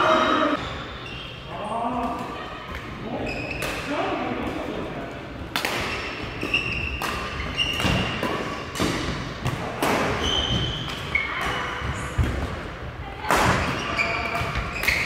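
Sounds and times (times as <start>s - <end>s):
shoes squeaking on court floor: 3.2s - 3.8s, 5.9s - 8.7s, 10.1s - 12.2s, 13.6s - 15.0s
rackets striking shuttlecock: 5.5s - 11.6s.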